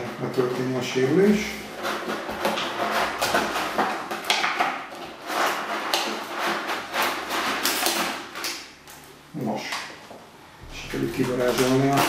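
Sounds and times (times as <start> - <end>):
plastic packaging crackling: 10.7 - 12.0.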